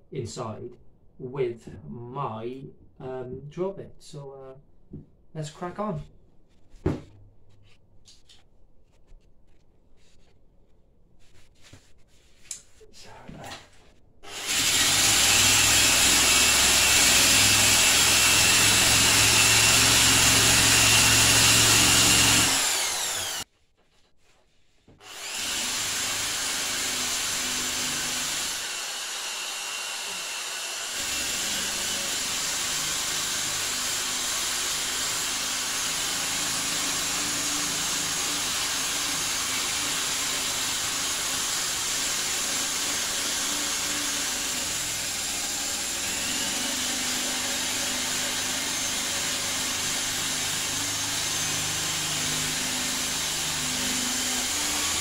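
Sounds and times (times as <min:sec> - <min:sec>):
electric drill scouring metal tank: 0:14.2 - 0:23.5, 0:25.0 - 0:55.0.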